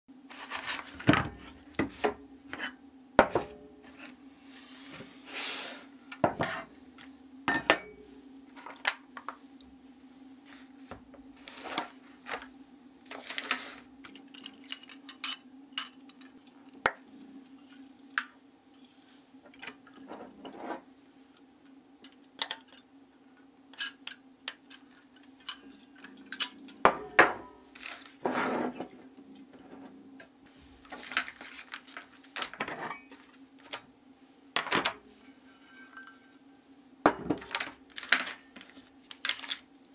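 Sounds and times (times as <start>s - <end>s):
faint steady hum: 0.1s - 39.9s
packet rustling: 30.8s - 33.8s, 37.4s - 39.7s.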